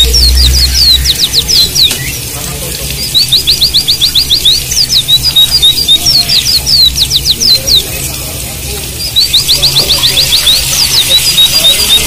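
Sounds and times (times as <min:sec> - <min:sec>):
low hum: 0:00.0 - 0:02.3
birds chirping and whistling: 0:00.0 - 0:12.0.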